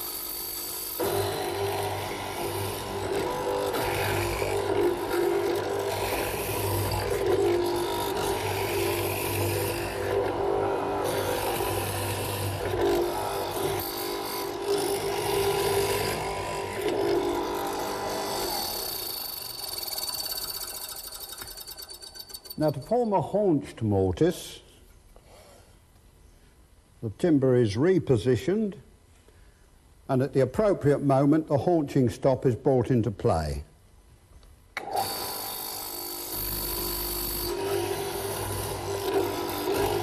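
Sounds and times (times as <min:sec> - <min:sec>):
electric motor humming: 0:01.0 - 0:21.2, 0:34.8 - 0:40.0.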